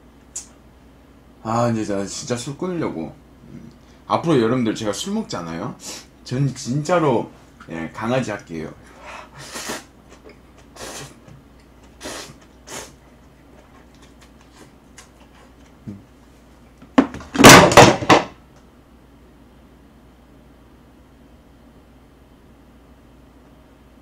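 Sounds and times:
plastic tub knocks and rattles: 17.0s - 18.3s.

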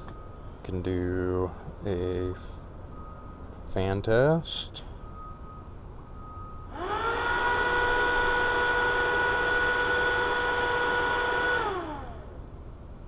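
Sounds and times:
electric cooling fan whine: 6.2s - 13.0s.

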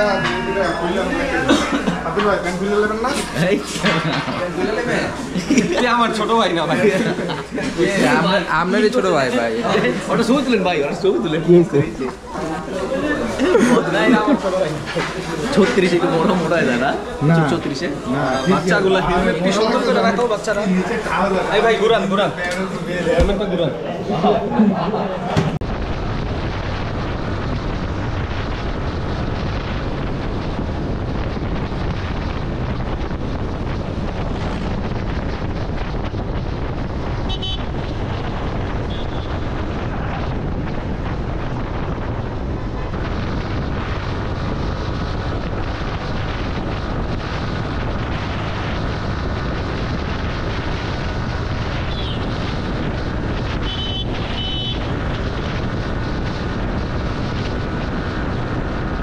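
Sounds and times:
wind buffeting the microphone: 25.3s - 59.0s.

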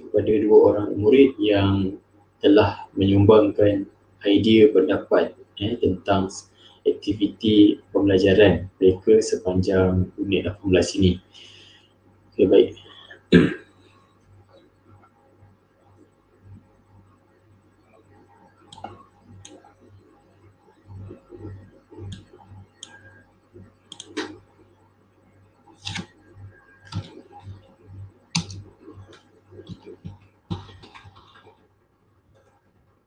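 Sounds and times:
low electrical hum: 0.0s - 33.0s
computer mouse and keyboard clicks: 23.9s - 24.4s, 25.8s - 26.2s, 26.8s - 27.6s, 28.3s - 31.6s.

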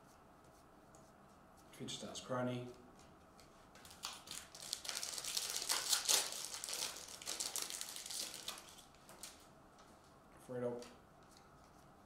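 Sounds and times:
foil wrapper crinkling: 3.8s - 9.4s.

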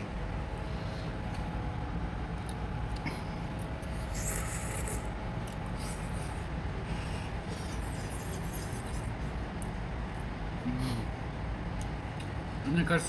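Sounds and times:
person slurping noodles: 3.9s - 5.1s.

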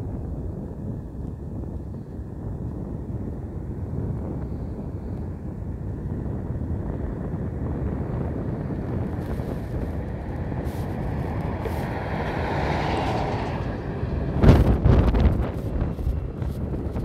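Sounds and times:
wind rumbling on microphone: 0.0s - 17.0s
rushing sound: 9.2s - 16.8s.

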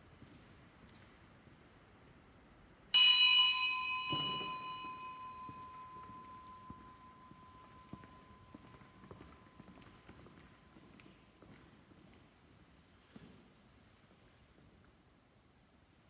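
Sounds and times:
bell ringing: 3.0s - 8.6s.

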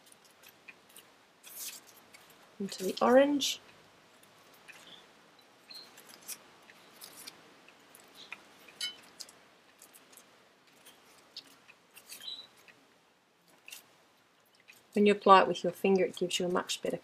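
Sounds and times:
paper handling: 0.0s - 3.2s
bubble wrap crinkling: 0.0s - 3.6s, 5.7s - 12.8s, 13.4s - 15.1s.

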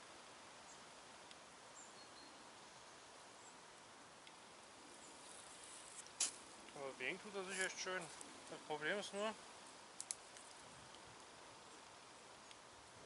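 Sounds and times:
faint outdoor hiss: 0.0s - 13.0s
soft ticks: 1.2s - 1.4s, 4.2s - 4.4s, 10.0s - 11.0s, 11.8s - 12.6s
faint high chirps: 1.7s - 3.6s.

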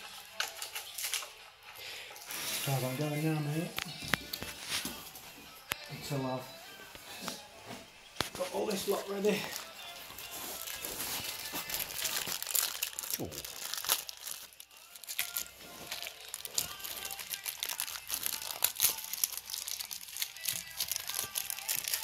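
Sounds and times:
plastic bags crinkling: 8.2s - 22.0s.

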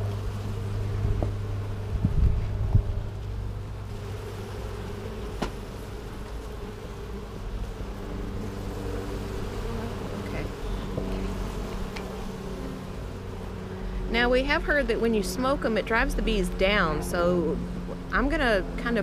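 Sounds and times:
bees buzzing: 0.0s - 19.0s.

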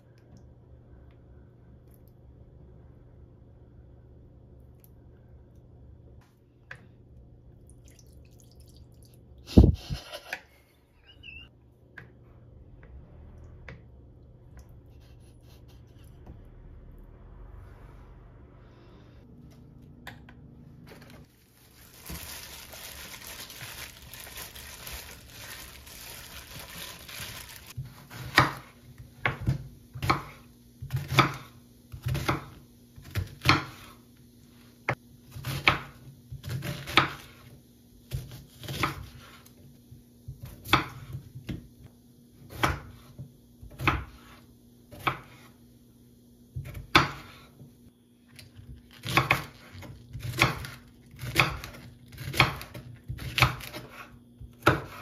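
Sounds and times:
knife chopping onion on wooden board: 27.8s - 34.0s, 34.9s - 37.5s, 40.3s - 41.6s, 42.4s - 45.5s, 46.5s - 47.6s, 49.0s - 55.0s.

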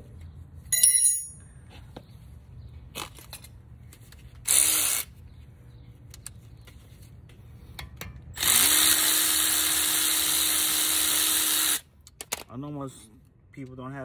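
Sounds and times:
electric wrench motor whine: 8.4s - 11.8s.

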